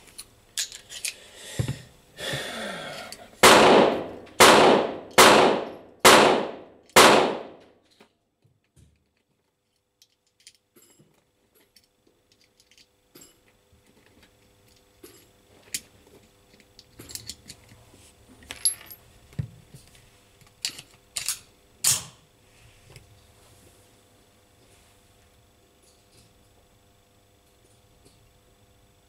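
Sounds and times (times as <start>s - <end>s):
metal parts clinking: 0.2s - 1.2s, 9.1s - 15.9s, 16.5s - 17.8s, 18.4s - 19.0s, 20.6s - 21.5s.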